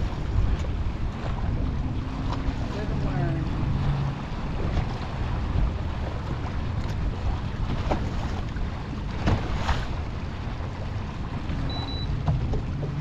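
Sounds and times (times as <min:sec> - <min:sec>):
choppy water: 0:00.0 - 0:13.0
wind buffeting microphone: 0:00.0 - 0:13.0.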